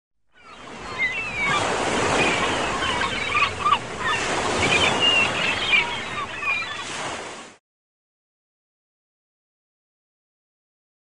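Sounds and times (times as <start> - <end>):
ocean surf washing: 0.4 - 7.6.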